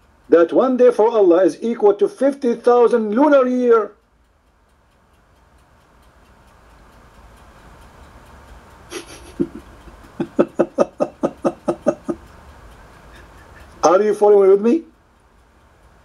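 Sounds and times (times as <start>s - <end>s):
faint low hum and hiss: 0.0s - 16.0s
person laughing: 8.9s - 12.2s, 13.1s - 13.8s.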